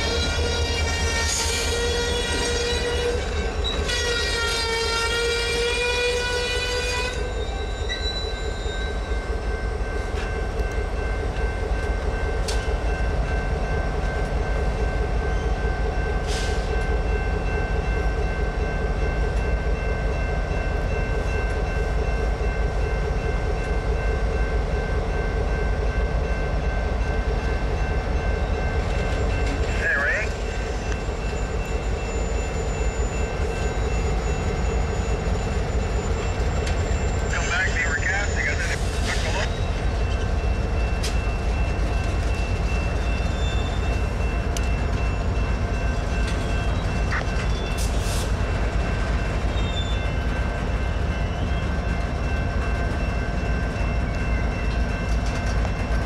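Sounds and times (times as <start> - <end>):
locomotive air horn: 0.0 - 3.2, 3.8 - 7.3
train rumbling past: 0.0 - 56.0.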